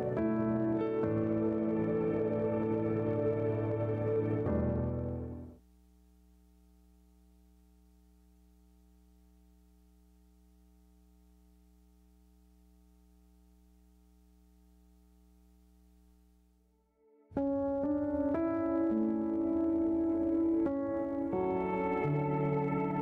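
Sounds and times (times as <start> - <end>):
background music: 0.0 - 5.6, 17.3 - 23.0
faint low hum: 0.0 - 16.7.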